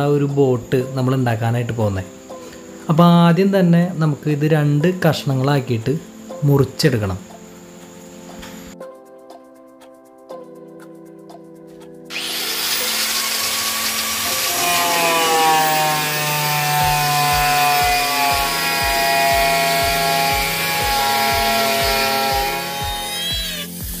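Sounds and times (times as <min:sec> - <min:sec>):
background music with low beat: 0:00.0 - 0:24.0
power tool cutting plastic: 0:12.1 - 0:24.0.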